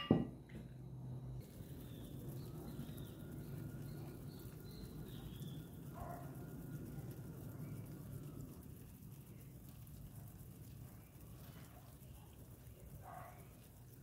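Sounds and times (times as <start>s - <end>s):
faint birds chirping: 0.0s - 14.0s
low outdoor rumble: 0.0s - 14.0s.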